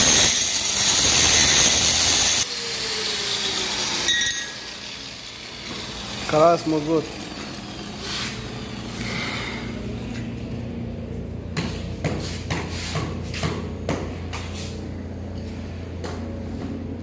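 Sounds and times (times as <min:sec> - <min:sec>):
steady low hum: 0:07.0 - 0:17.0.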